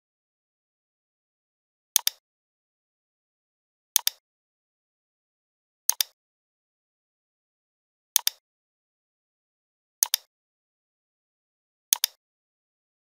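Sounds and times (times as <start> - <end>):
computer mouse button clicks: 2.0 - 2.2, 4.0 - 4.2, 5.9 - 6.2, 8.2 - 8.4, 10.0 - 10.3, 11.9 - 12.2.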